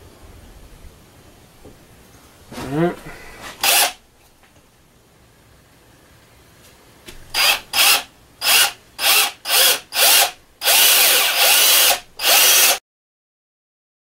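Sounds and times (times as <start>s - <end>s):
cordless drill boring into metal: 3.6s - 4.0s, 7.3s - 12.8s.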